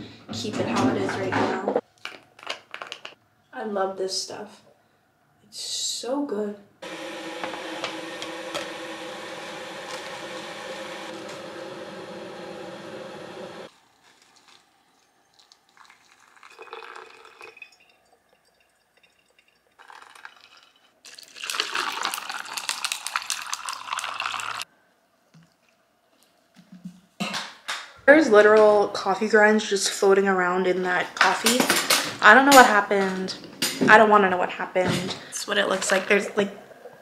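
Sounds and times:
steady hum with even tones: 6.7 - 13.7
hot water pouring into filter: 6.8 - 24.7
liquid poured over ice: 13.7 - 24.6.

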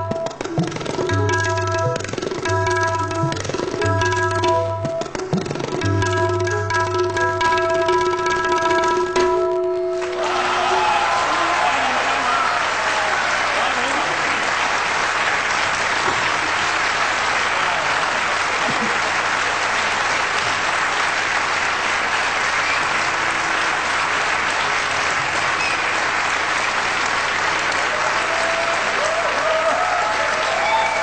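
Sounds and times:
audience applauding: 9.9 - 31.0.

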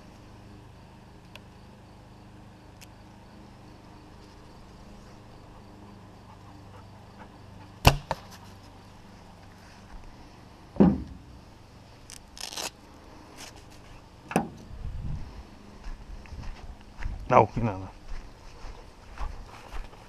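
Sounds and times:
arrow striking target: 7.8 - 8.4, 10.8 - 11.3
bowstring crack: 12.0 - 12.8.

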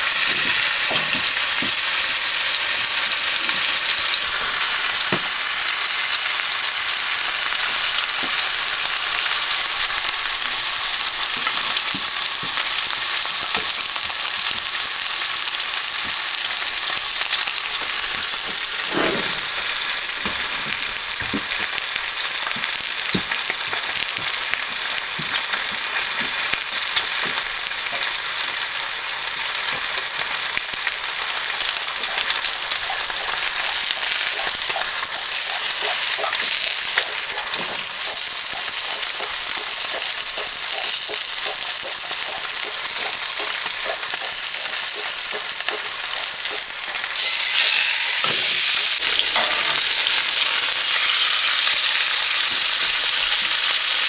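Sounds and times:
steaks sizzling in oil: 0.0 - 54.0.

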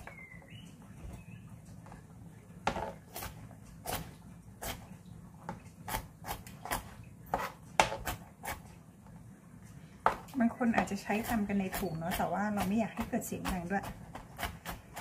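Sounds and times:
knife chopping on cutting board: 5.9 - 8.6, 10.8 - 15.0.

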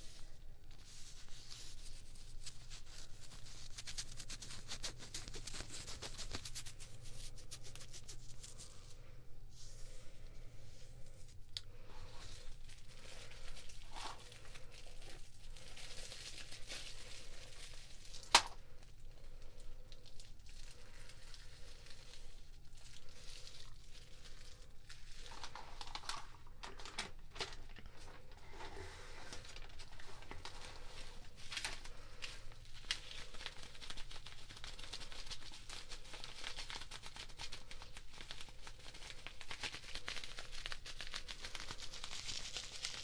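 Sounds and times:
packaging crinkling and rustling: 11.0 - 43.0.

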